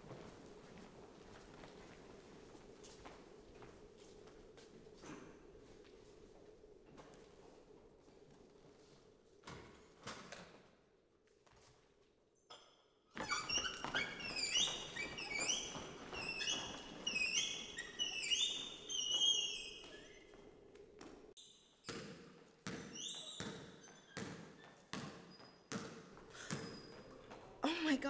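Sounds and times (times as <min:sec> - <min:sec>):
sneakers squeaking on hardwood floor: 0:13.1 - 0:27.5
basketball bouncing: 0:21.9 - 0:26.8.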